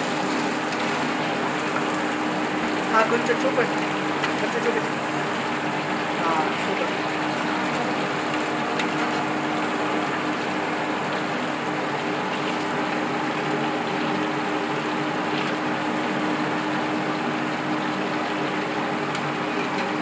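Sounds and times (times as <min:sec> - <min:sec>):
oil sizzling and bubbling: 0:00.0 - 0:20.0.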